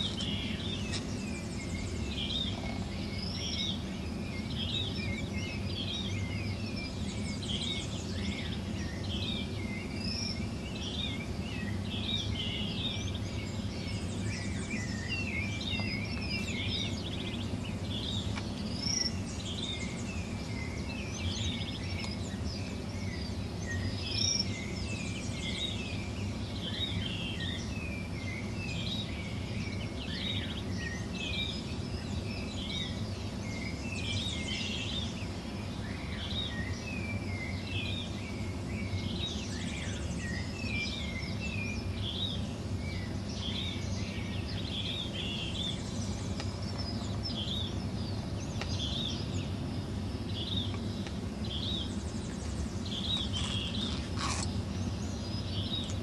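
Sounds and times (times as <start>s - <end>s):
birds chirping and trilling: 0.0s - 56.0s
low background rumble: 0.0s - 56.0s.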